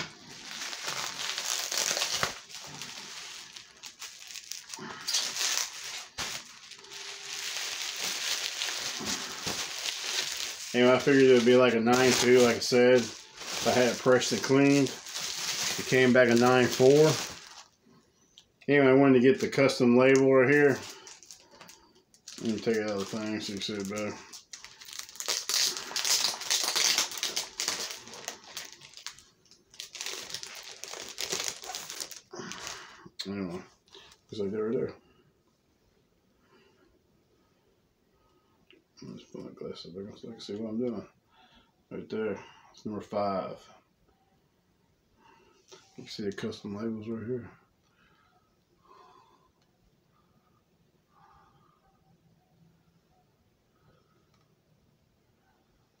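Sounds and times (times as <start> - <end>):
plastic wrapping crinkling: 0.0 - 17.8, 19.0 - 34.2.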